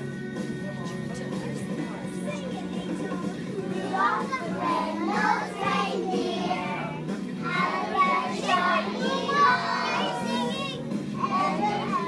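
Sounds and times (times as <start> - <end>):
music: 0.0 - 12.0
children singing: 2.6 - 12.0.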